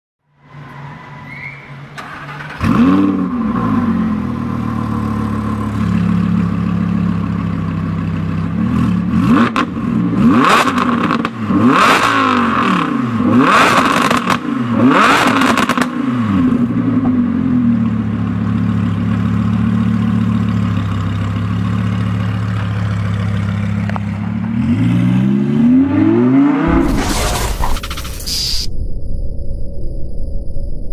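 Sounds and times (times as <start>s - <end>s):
sports car engine revving: 2.3s - 6.4s, 8.5s - 18.5s, 23.3s - 26.9s
car engine idling: 4.0s - 8.6s, 17.2s - 24.5s.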